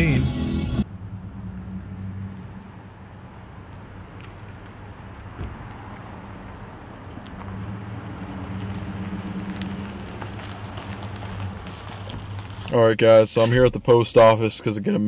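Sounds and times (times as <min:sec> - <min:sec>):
pickup truck engine hum: 0:00.0 - 0:12.8.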